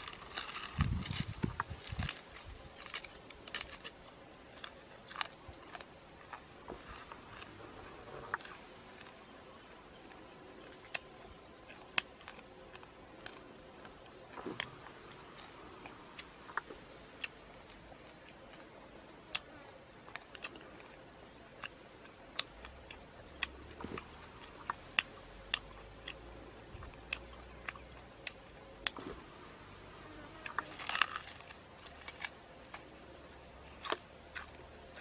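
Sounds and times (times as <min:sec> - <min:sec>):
dry clicks and crackles: 0:00.0 - 0:09.2, 0:30.4 - 0:32.9.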